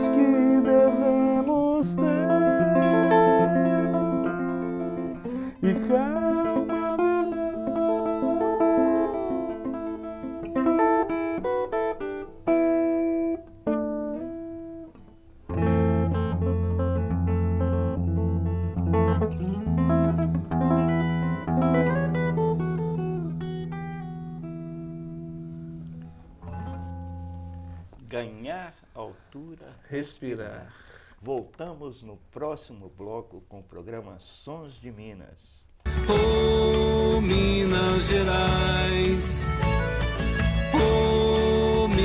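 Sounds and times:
fingerpicked electric guitar: 0.0s - 28.0s, 35.8s - 42.0s
low bass notes: 35.9s - 42.0s.

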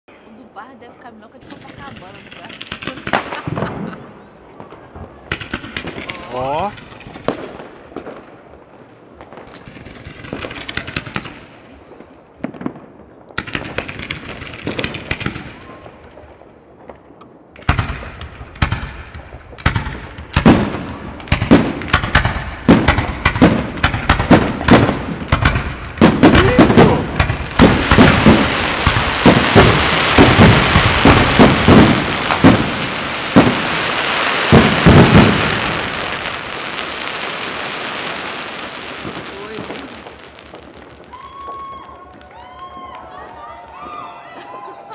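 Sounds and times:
fireworks cracking and popping: 0.2s - 44.7s.

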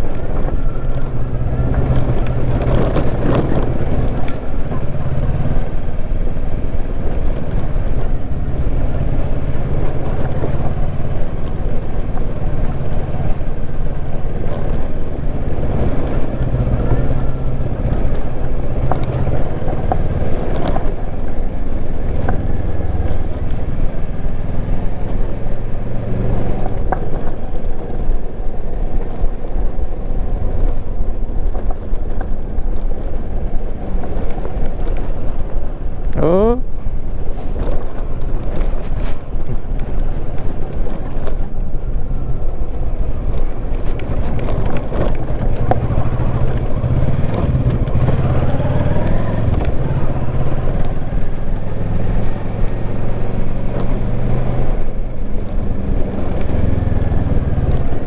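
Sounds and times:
wind rushing over microphone: 0.0s - 58.0s
motorcycle engine running: 41.1s - 58.0s.

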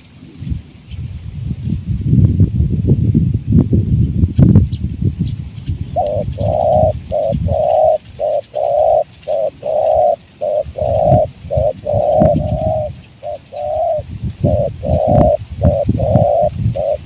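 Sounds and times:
wind noise on microphone: 0.0s - 17.0s
dove cooing: 6.0s - 17.0s.

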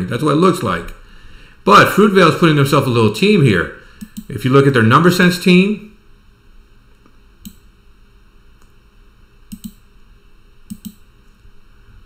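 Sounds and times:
computer mouse clicking: 4.0s - 4.3s, 7.0s - 7.6s, 9.5s - 9.8s, 10.7s - 11.0s.

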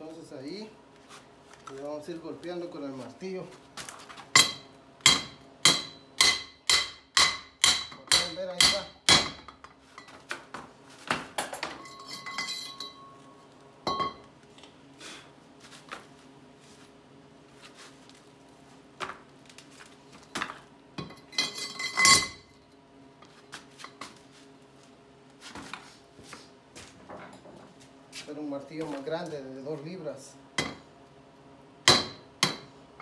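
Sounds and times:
metal pipes clinking and clanking: 11.4s - 13.3s, 13.9s - 14.3s, 21.0s - 22.5s.

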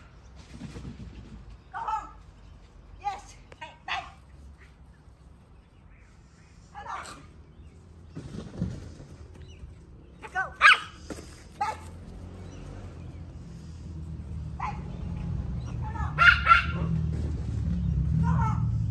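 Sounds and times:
small dogs yapping: 6.8s - 7.4s, 10.2s - 12.0s, 14.5s - 17.1s.

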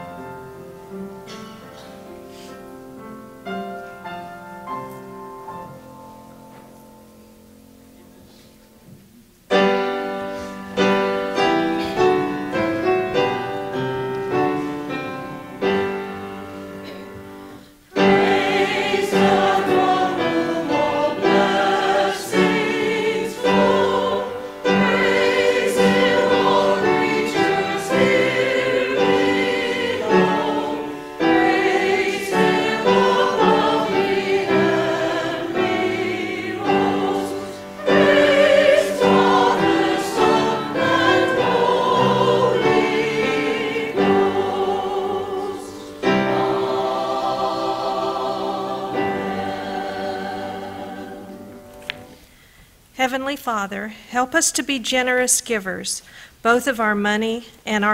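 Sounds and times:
choir and congregation singing hymn: 0.0s - 6.8s, 9.6s - 52.2s
keyboard playing: 18.0s - 51.8s.

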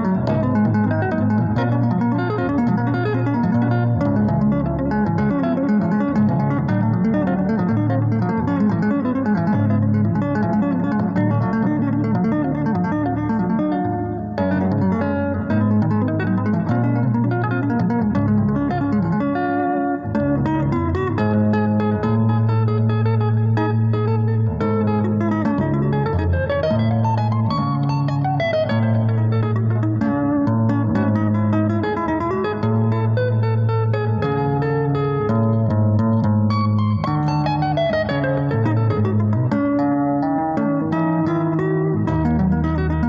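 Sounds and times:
electric guitar tapping: 0.0s - 43.0s.

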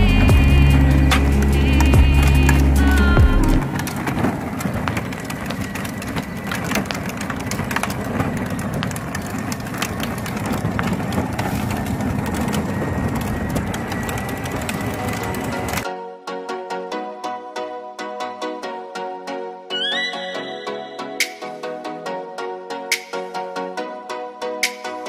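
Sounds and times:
plastic wheels crunching over grit: 0.0s - 15.9s.

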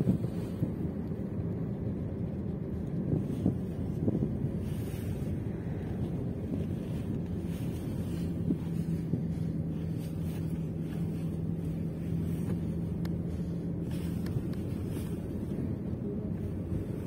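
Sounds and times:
car engine and road rumble: 0.0s - 17.0s
engine hum: 0.0s - 17.0s
wind on microphone: 0.0s - 17.0s.

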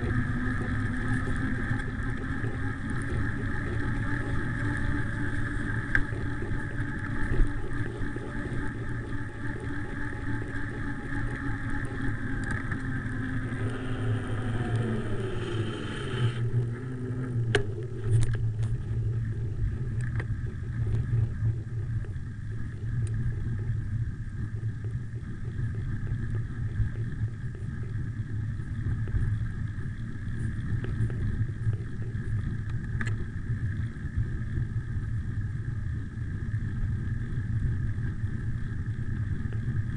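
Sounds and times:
steady whine: 0.0s - 39.9s
wind rumbling on microphone: 0.0s - 39.9s.

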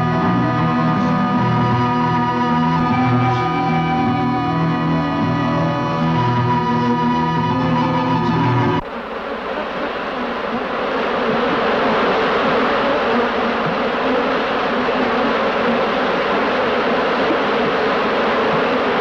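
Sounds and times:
sustained musical tones: 0.0s - 8.8s
dense buzzing noise: 0.0s - 19.0s.

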